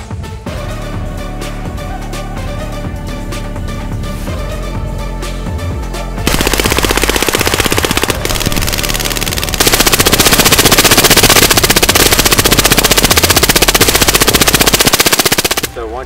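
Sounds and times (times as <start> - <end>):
rifle automatic fire: 6.3 - 15.8.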